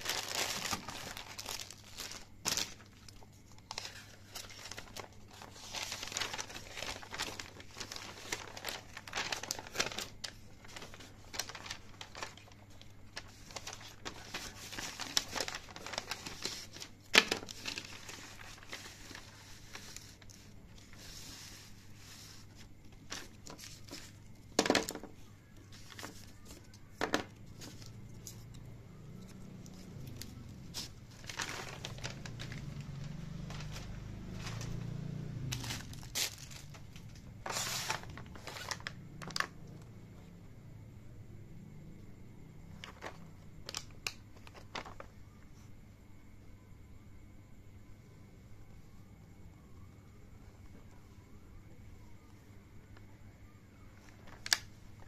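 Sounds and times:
game mat and plastic wrapping crinkling: 0:00.0 - 0:39.9, 0:42.6 - 0:45.1, 0:53.9 - 0:55.0.

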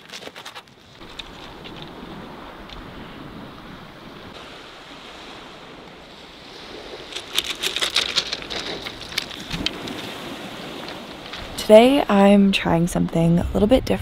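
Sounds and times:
wind: 0:00.0 - 0:14.0
small waves washing on shore: 0:00.8 - 0:12.3
quick light clicks and rattles: 0:07.1 - 0:10.0.

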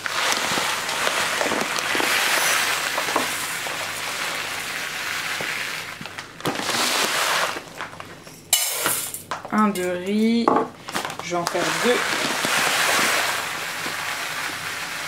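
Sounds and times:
rice pouring into glass jar: 0:00.0 - 0:07.9, 0:11.4 - 0:15.0
rice spilling onto worktop: 0:00.0 - 0:09.0, 0:10.9 - 0:15.0.

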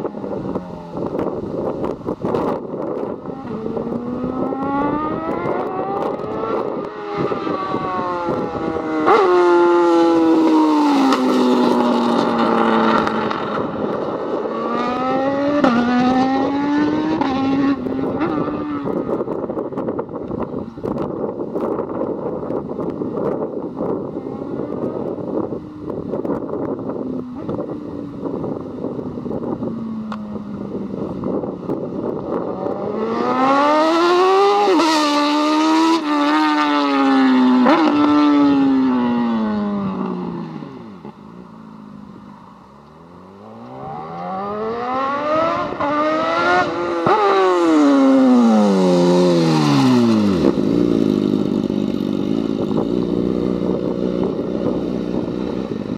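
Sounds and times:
motorcycle passing by: 0:02.5 - 0:19.3, 0:32.2 - 0:41.1, 0:43.0 - 0:55.9.

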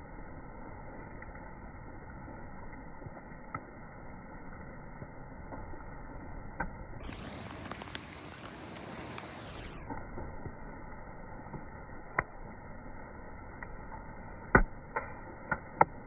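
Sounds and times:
faint clicks: 0:06.6 - 0:10.6.

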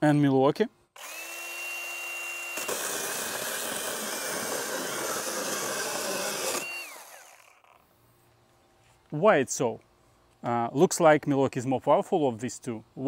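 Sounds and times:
chainsaw cutting wooden board: 0:01.0 - 0:07.8
electric chainsaw motor whine: 0:01.0 - 0:07.8.

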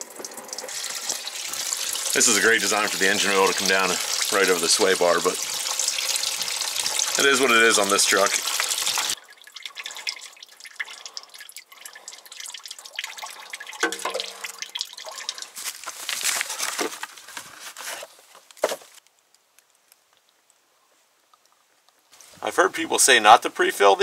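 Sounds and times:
oil dripping into bucket: 0:00.0 - 0:16.8.

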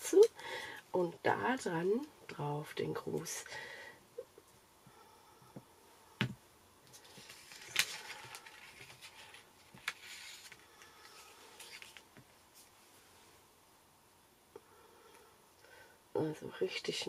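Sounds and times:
paper sheets rustling and sliding: 0:06.9 - 0:12.0.

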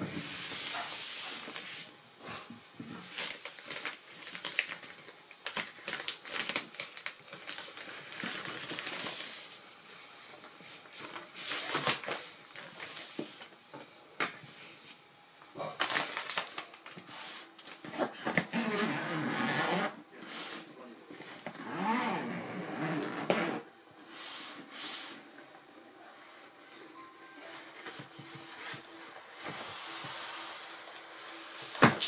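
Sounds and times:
plastic bag rustling and crinkling: 0:02.9 - 0:13.5, 0:15.6 - 0:19.9.

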